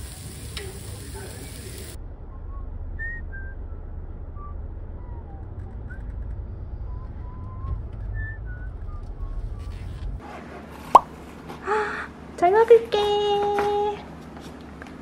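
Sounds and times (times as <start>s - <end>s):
steady hiss: 0.0s - 2.0s
low hum: 1.9s - 10.2s
person whistling a tune: 2.4s - 3.8s, 6.9s - 9.8s.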